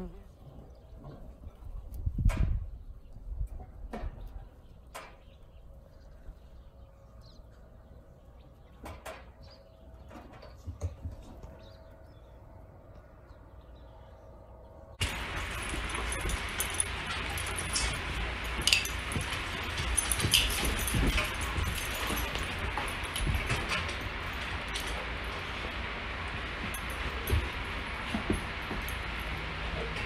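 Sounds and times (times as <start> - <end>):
collar tags jingling: 15.0 - 30.0.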